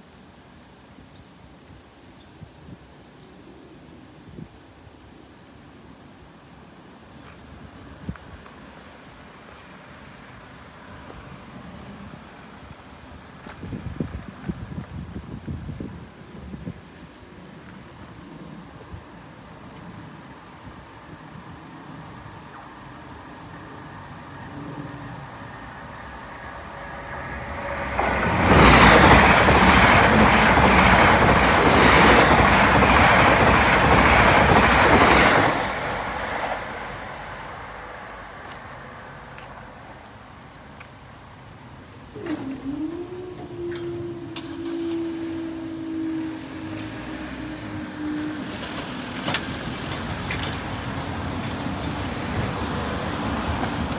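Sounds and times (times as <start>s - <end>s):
train wheels rushing on rail: 22.1s - 40.1s, 42.2s - 53.9s
level crossing warning tone: 42.2s - 48.6s
cars driving on wet road: 44.4s - 53.9s.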